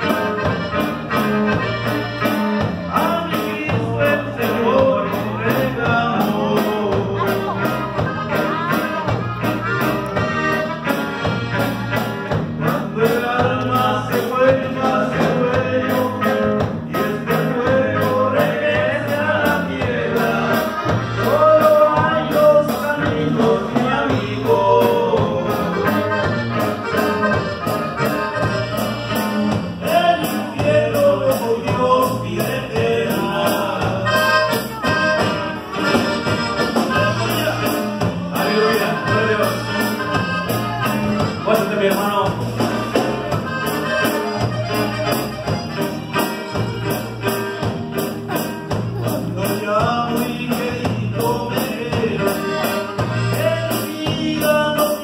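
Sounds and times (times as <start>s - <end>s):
drum kit: 0.0s - 55.0s
electric guitars: 0.0s - 55.0s
man singing: 2.8s - 9.0s, 12.6s - 27.0s, 29.7s - 44.1s, 48.3s - 55.0s.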